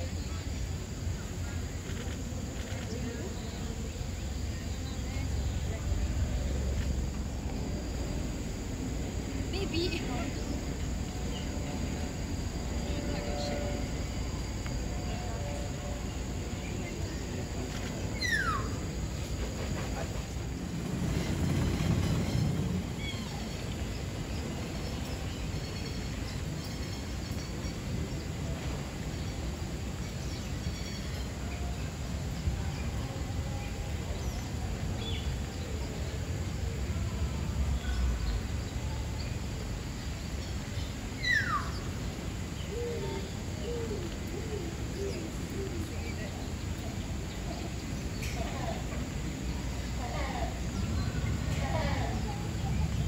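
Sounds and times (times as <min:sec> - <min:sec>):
low outdoor rumble: 0:00.0 - 0:53.0
birds calling: 0:40.8 - 0:42.0.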